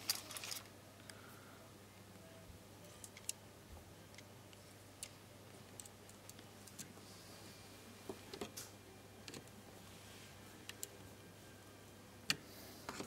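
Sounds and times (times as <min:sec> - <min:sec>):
faint steady hum: 0:00.0 - 0:13.0
wires being handled clicking: 0:02.9 - 0:03.4, 0:04.1 - 0:07.0, 0:10.6 - 0:11.0.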